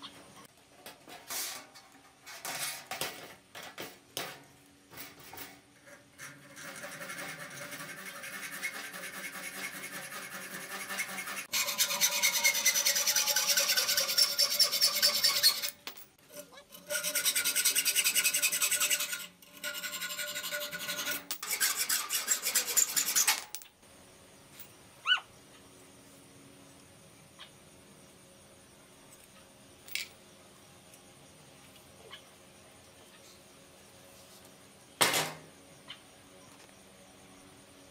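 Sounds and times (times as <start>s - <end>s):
hacksaw rasping on metal: 6.2s - 23.4s.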